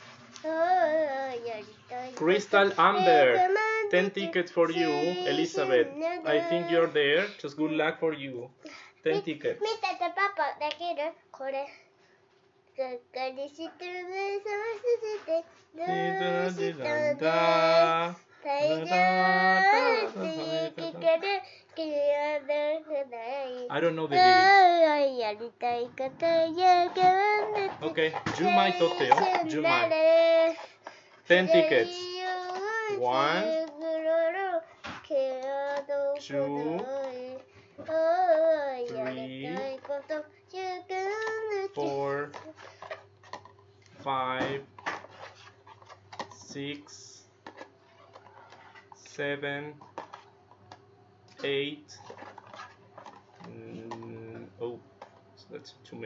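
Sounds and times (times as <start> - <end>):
girl singing: 0.4 - 7.0, 9.1 - 11.8, 12.8 - 30.8, 31.4 - 42.7.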